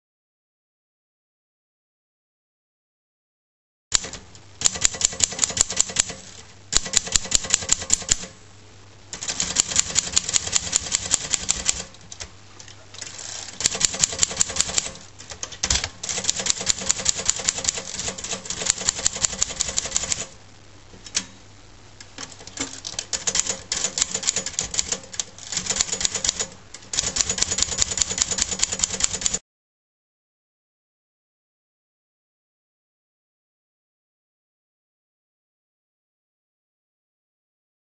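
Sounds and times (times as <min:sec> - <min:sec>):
typewriter key strikes: 0:03.9 - 0:08.3, 0:09.2 - 0:12.3, 0:13.0 - 0:20.3, 0:22.2 - 0:29.4
low steady hum: 0:06.1 - 0:23.8.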